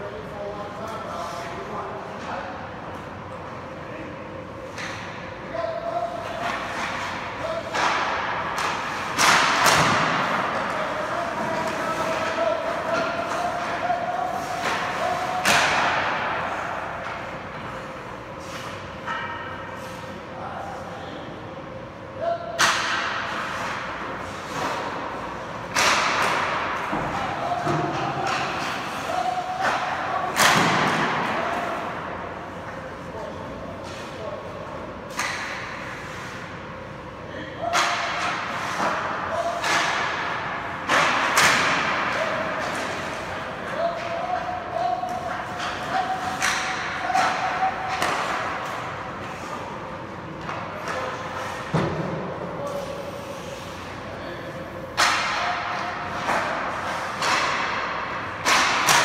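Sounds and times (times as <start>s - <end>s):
hockey pucks cracking: 6.4s - 16.4s, 25.7s - 31.4s, 44.0s - 49.5s, 55.0s - 59.0s.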